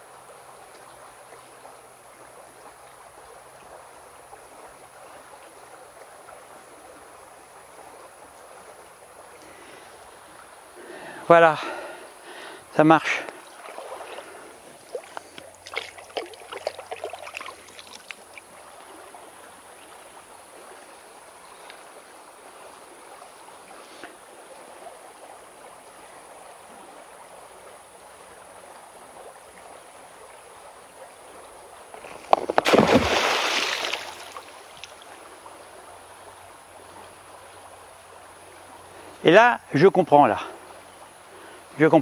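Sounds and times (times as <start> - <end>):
river running over stones: 0.0 - 42.0
stones clattering and splashing: 32.0 - 34.9.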